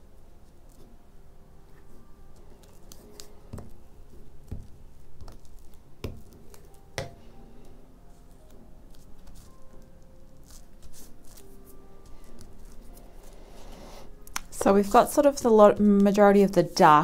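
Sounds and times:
paper handled and pressed: 0:08.2 - 0:13.4, 0:14.3 - 0:17.0.

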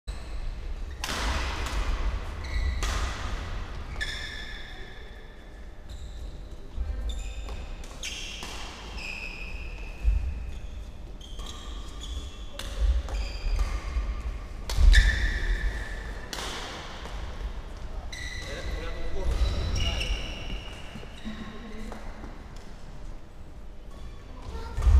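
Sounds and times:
racket hitting shuttlecock: 0:01.0 - 0:02.1, 0:16.2 - 0:17.2
shoes squeaking on floor: 0:02.4 - 0:02.8, 0:03.9 - 0:04.9, 0:05.8 - 0:13.9, 0:18.1 - 0:21.6.

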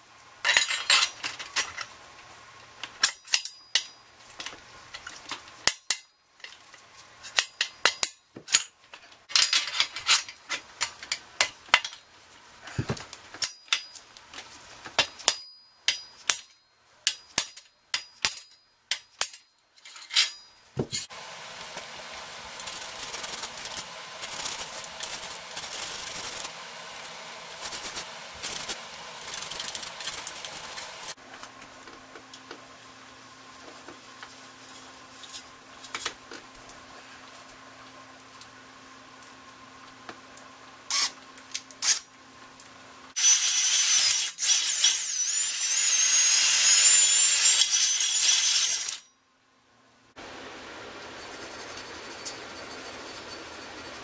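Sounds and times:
steady rubbing noise: 0:21.0 - 0:31.2.

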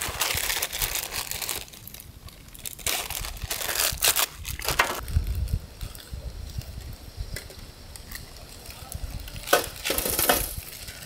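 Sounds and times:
dry material crunching: 0:00.0 - 0:06.7.

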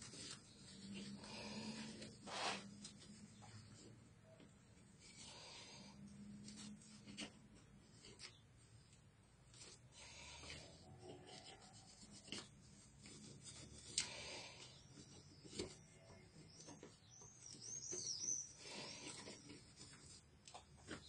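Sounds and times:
fingers rubbing and scraping: 0:00.0 - 0:08.9, 0:09.5 - 0:21.0.

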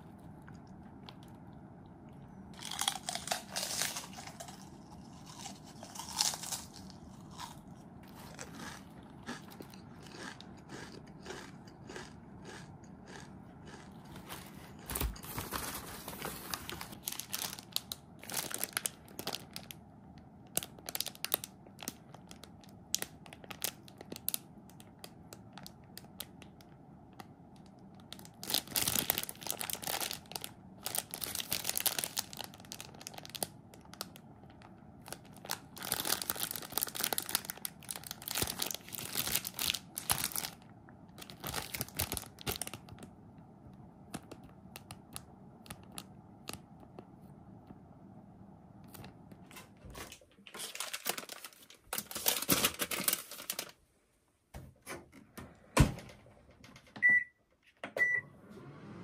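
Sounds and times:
plastic wrapper crinkling and tearing: 0:02.6 - 0:08.8, 0:14.0 - 0:19.8, 0:20.4 - 0:43.1, 0:50.0 - 0:53.8.

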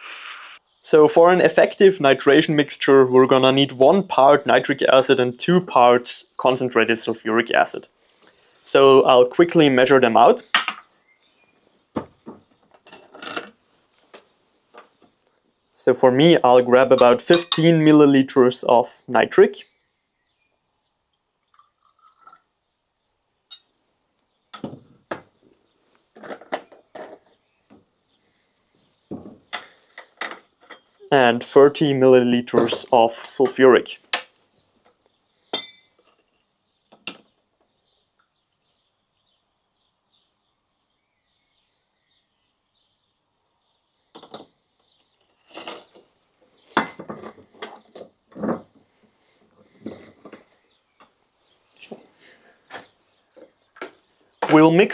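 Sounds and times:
glass bottles clinking: 0:16.9 - 0:17.8, 0:35.5 - 0:36.2, 0:46.7 - 0:47.7
glass clinks and knocks: 0:17.0 - 0:17.7, 0:23.5 - 0:23.7, 0:24.5 - 0:25.3, 0:29.1 - 0:31.0, 0:35.5 - 0:36.2, 0:36.9 - 0:37.3, 0:44.2 - 0:44.5, 0:46.8 - 0:47.7
liquid trickling into beaker: 0:21.5 - 0:22.5.

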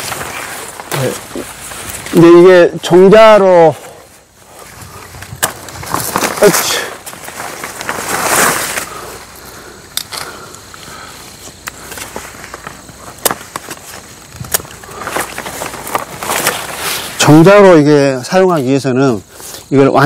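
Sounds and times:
leaves and branches rustling: 0:00.0 - 0:20.0
pruning shears clicking: 0:09.9 - 0:10.4.

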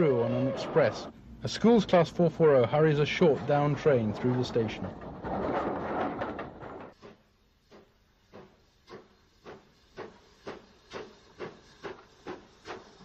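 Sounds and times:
steam locomotive chuffing: 0:07.0 - 0:13.0.

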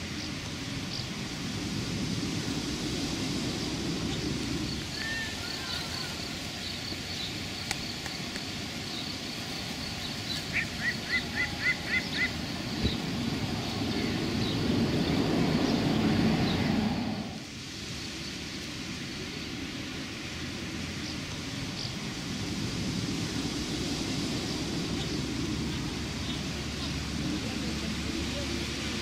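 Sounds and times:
steady low rumble: 0:00.0 - 0:05.0, 0:06.1 - 0:29.0
faint high chirping: 0:04.1 - 0:07.9, 0:08.8 - 0:17.4.

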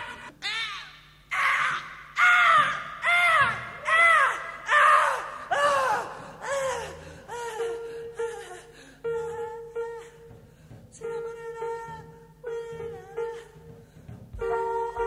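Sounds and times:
swooping cries: 0:00.0 - 0:08.6.

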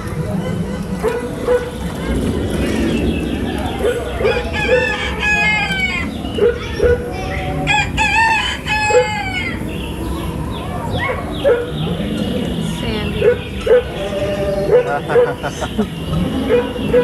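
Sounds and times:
hens clucking: 0:00.0 - 0:17.0
rooster crowing: 0:04.3 - 0:06.1, 0:07.7 - 0:09.6.

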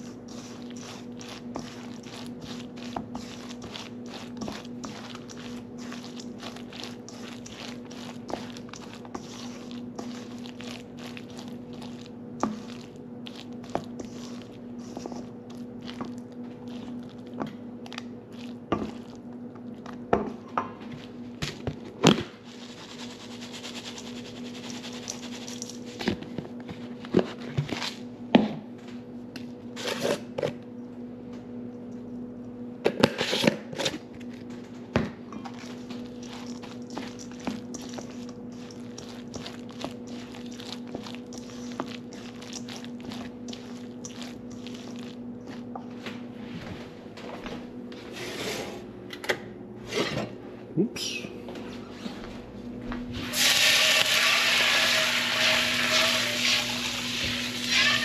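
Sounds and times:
spatula scraping metal bowl: 0:00.0 - 0:16.1, 0:29.8 - 0:30.6, 0:35.6 - 0:45.2
oats pouring into bowl: 0:00.0 - 0:17.2, 0:35.6 - 0:45.6, 0:53.3 - 0:58.0
steady low hum: 0:00.0 - 0:53.3.

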